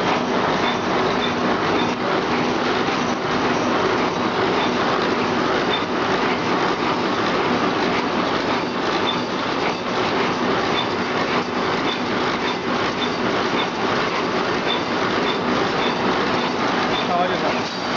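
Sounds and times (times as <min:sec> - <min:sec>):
packing machine clattering: 0:00.0 - 0:17.9.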